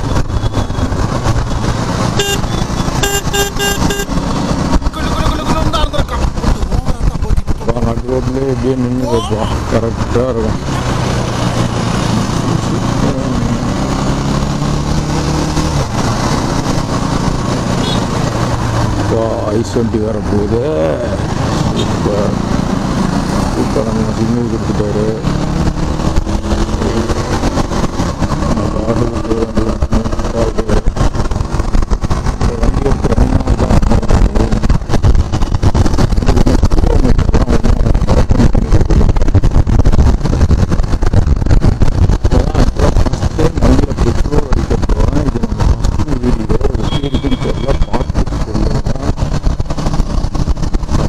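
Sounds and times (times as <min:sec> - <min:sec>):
motorcycle engine running: 0:08.8 - 0:19.6, 0:25.4 - 0:51.0
wind buffeting microphone: 0:25.3 - 0:46.9, 0:47.9 - 0:51.0.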